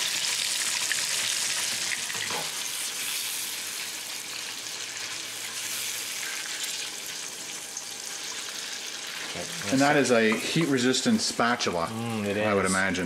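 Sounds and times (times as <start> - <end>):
food sizzling in butter: 0.0 - 13.0.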